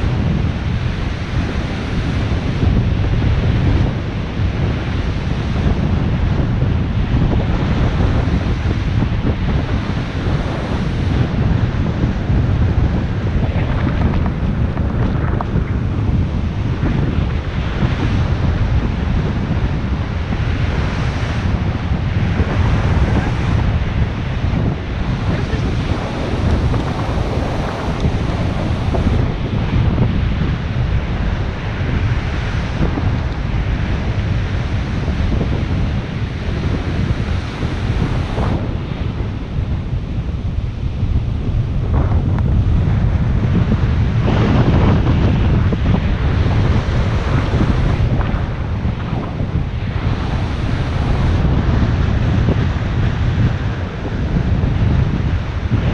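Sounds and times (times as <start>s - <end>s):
wind buffeting microphone: 0.0s - 55.9s
surf breaking: 7.6s - 39.4s, 41.8s - 54.3s.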